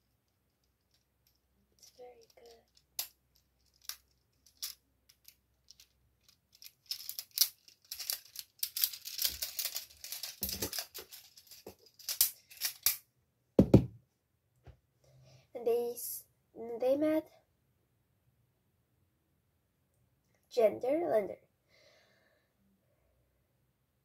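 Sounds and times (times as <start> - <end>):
plastic tiles clicking and clattering: 0.5 - 13.0.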